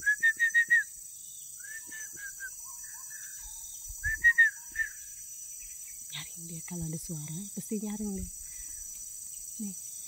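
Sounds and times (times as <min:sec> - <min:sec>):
bird whistling calls: 0:00.0 - 0:00.9, 0:01.6 - 0:05.2.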